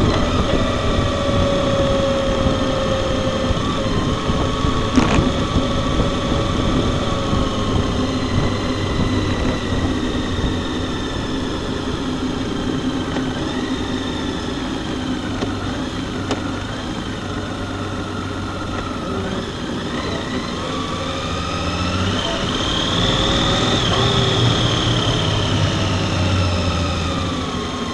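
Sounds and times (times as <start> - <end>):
motorcycle engine cruising: 0.0 - 27.9
road and wind rumble: 0.0 - 27.9.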